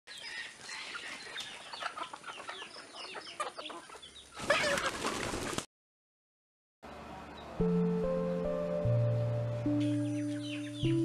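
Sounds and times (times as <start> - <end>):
chickens clucking: 0.1 - 5.6
bird flurry close by: 4.4 - 5.7.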